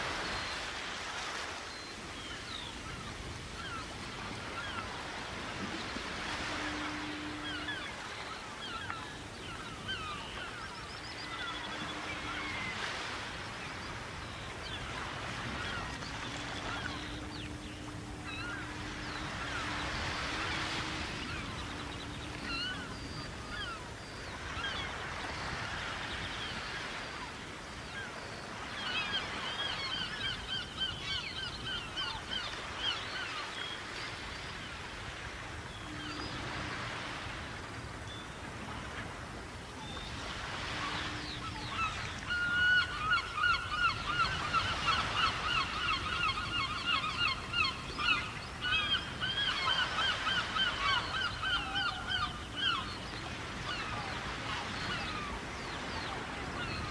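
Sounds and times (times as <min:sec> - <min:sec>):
gull calling: 0:03.6 - 0:25.6, 0:40.2 - 0:56.9.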